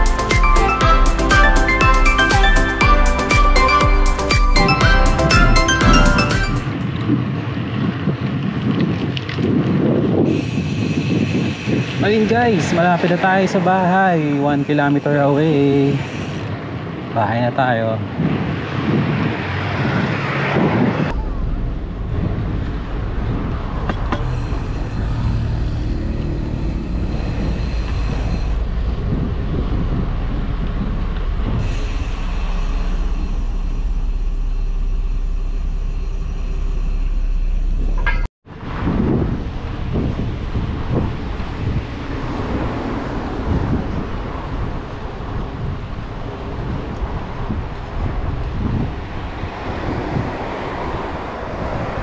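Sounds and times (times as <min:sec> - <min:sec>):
wind rush while cycling: 0:04.6 - 0:52.0
motor traffic passing: 0:10.1 - 0:17.0, 0:18.4 - 0:52.0.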